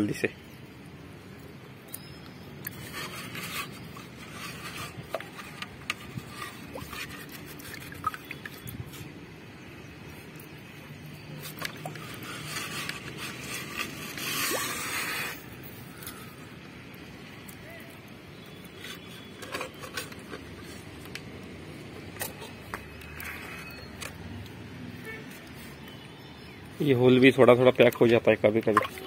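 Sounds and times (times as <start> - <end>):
fingers scraping scale off metal: 11.5 - 15.4, 18.8 - 20.6.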